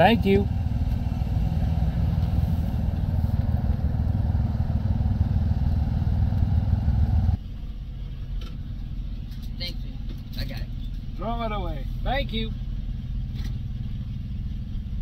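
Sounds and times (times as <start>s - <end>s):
engine hum inside cab: 0.0s - 15.0s
vehicle engine and road rumble: 0.0s - 15.0s.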